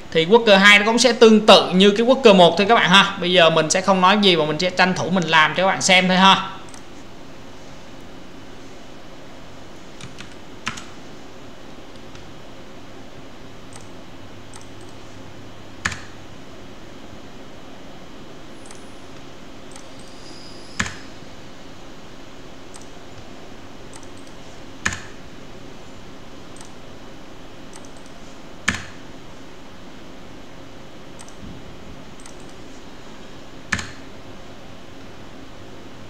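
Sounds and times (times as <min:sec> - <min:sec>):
low background hum: 0:00.0 - 0:36.0
keyboard key clicks: 0:14.5 - 0:15.0, 0:15.8 - 0:16.2, 0:23.9 - 0:25.2, 0:27.7 - 0:29.0, 0:32.2 - 0:32.6, 0:33.7 - 0:34.0.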